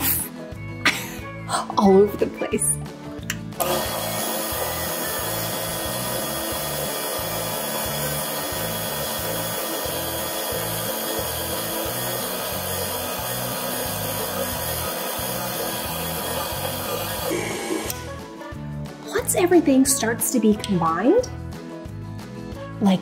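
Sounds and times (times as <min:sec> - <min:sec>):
stand mixer running: 0:03.6 - 0:18.2.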